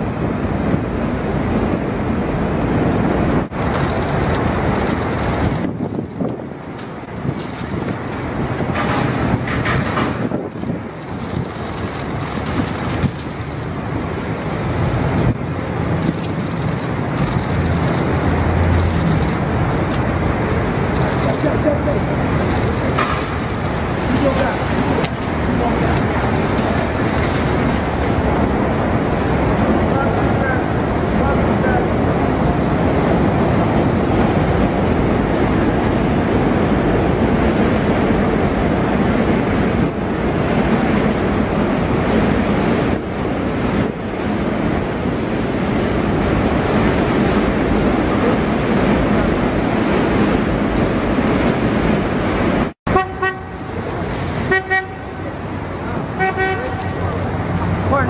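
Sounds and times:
street traffic: 0.0 - 58.0.

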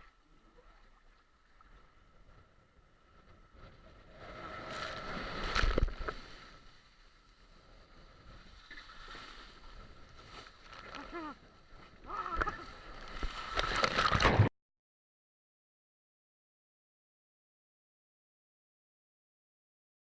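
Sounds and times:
water and air rushing: 1.3 - 11.0.

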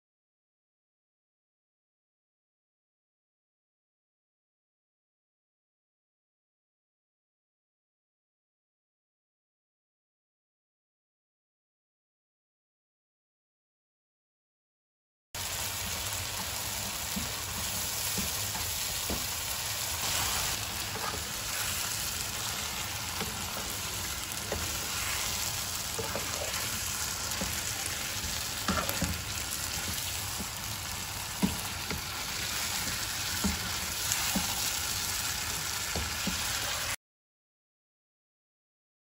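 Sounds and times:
sauce sizzling in a pan: 15.4 - 37.0
knocks and scrapes in pan: 17.2 - 30.5.

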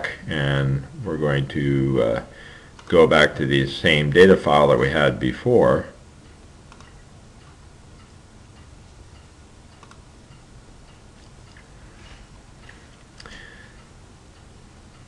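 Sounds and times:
steady low hiss: 0.0 - 15.0
faint clicks: 6.2 - 11.7, 12.6 - 15.0.

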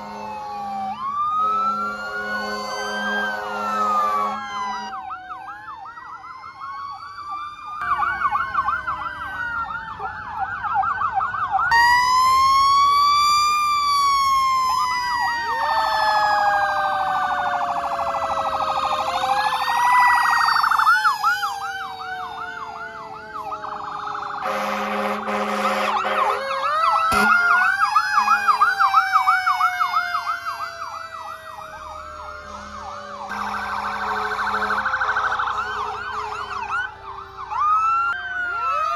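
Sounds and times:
emergency vehicle sirens: 0.0 - 38.9
horn blast: 24.4 - 26.4, 27.1 - 27.5.

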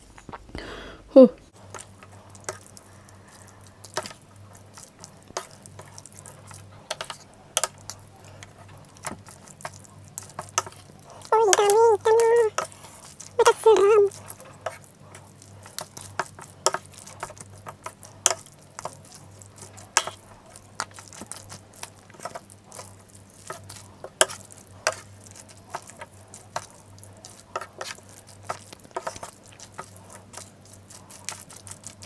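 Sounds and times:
wet squishing of noodles: 1.5 - 32.0
utensils tapping a plate: 5.3 - 12.8, 15.6 - 30.5.

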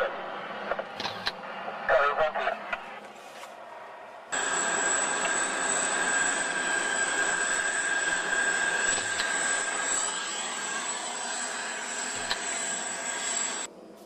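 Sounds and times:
high engine whine: 0.0 - 13.9
jet engines rushing: 3.7 - 13.8.

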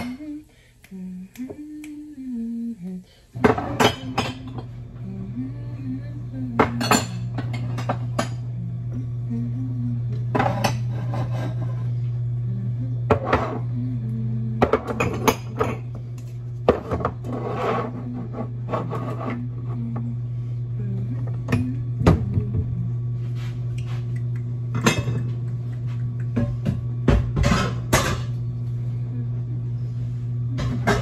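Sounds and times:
steady low hum: 0.0 - 31.0
dishes clinking and knocking: 3.4 - 4.7, 6.6 - 8.5, 14.6 - 15.9, 16.7 - 17.4, 24.8 - 25.5, 26.4 - 28.4, 30.6 - 31.0.

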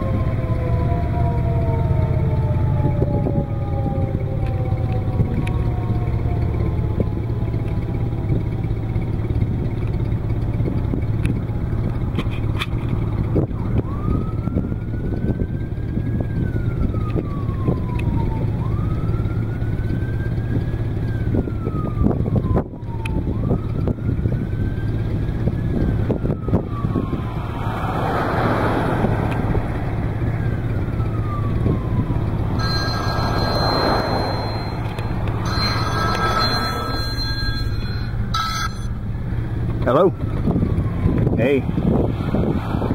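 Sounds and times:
siren wailing: 0.0 - 9.7, 13.0 - 41.3
steady low rumble: 29.1 - 42.5
phone ringing: 32.5 - 39.1.

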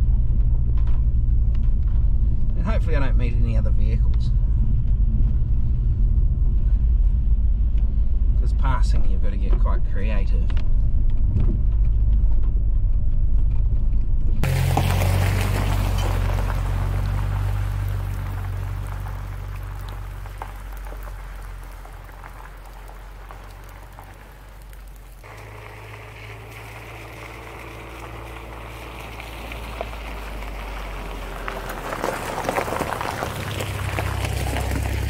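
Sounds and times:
car engine passing: 14.4 - 35.0
rain patter: 14.4 - 35.0
tyres crunching on gravel: 14.4 - 35.0.

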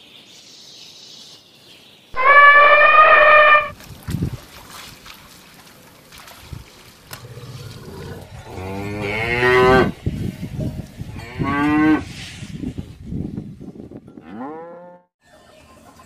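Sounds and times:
cow mooing: 2.2 - 3.7, 14.2 - 15.1.

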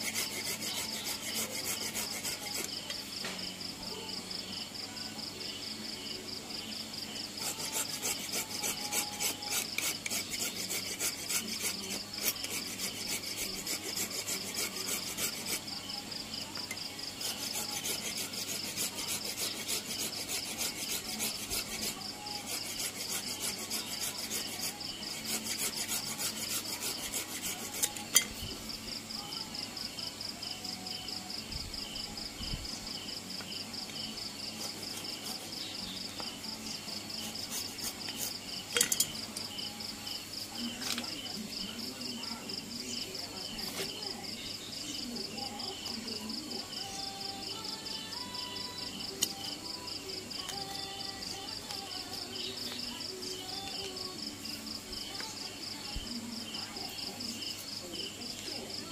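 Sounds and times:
file rasping wood: 0.0 - 2.8, 7.4 - 15.7, 17.2 - 28.4, 34.6 - 35.7, 37.1 - 38.4
insects chirping: 0.0 - 58.9.

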